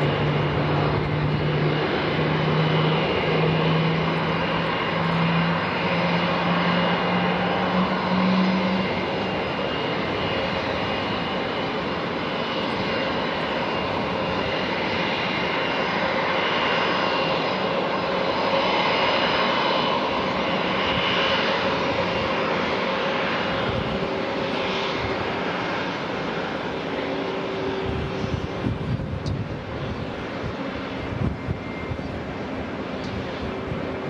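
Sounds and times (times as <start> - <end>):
jet engines rushing with high whine: 0.0 - 34.0.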